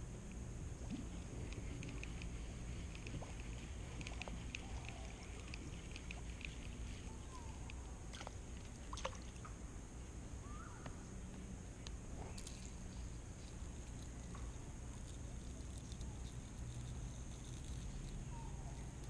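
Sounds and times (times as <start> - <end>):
steady low rumble: 0.0 - 19.0
faint clicks: 0.9 - 9.1.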